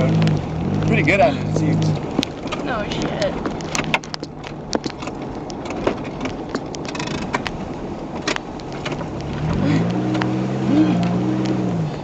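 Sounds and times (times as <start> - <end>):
car engine revving: 0.0 - 4.1, 8.2 - 12.0
loose parts rattling in car: 0.0 - 10.3.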